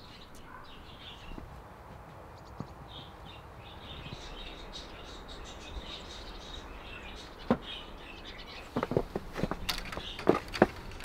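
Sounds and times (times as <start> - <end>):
budgerigars chirping: 2.4 - 8.8.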